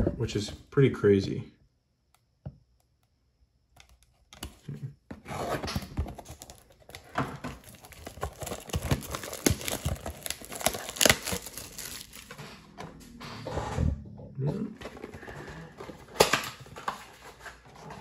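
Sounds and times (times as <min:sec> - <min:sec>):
plastic wrapping crinkling: 0:06.0 - 0:12.4.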